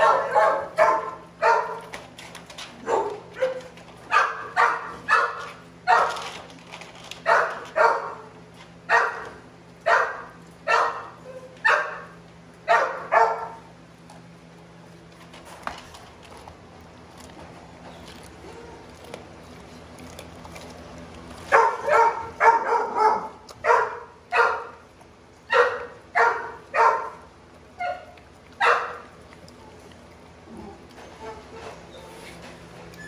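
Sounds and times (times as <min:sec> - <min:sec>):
dog barking: 0:00.0 - 0:01.8, 0:02.8 - 0:06.2, 0:07.3 - 0:08.3, 0:08.9 - 0:12.1, 0:12.7 - 0:13.6, 0:21.5 - 0:24.8, 0:25.5 - 0:27.2, 0:27.8 - 0:29.0.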